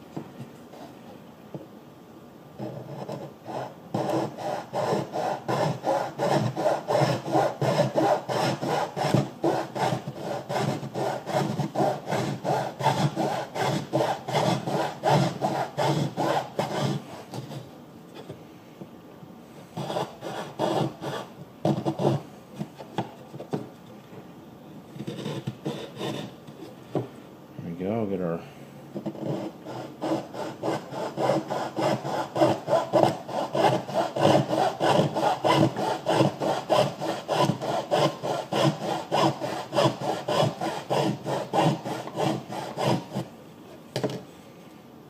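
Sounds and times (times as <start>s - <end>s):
hand saw cutting wood: 2.6s - 17.7s, 19.8s - 22.2s, 25.0s - 26.3s, 29.0s - 43.3s.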